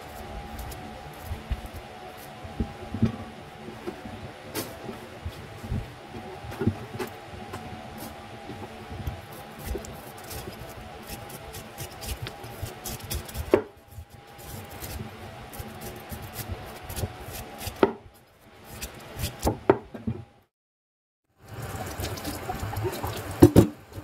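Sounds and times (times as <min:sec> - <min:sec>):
knife cutting and scraping bamboo: 0:00.0 - 0:02.4, 0:07.9 - 0:19.6
faint steady hum: 0:00.0 - 0:20.5, 0:21.4 - 0:24.0.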